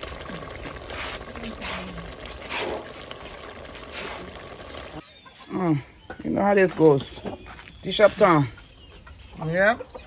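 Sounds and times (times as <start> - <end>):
soup bubbling in pot: 0.0 - 5.1.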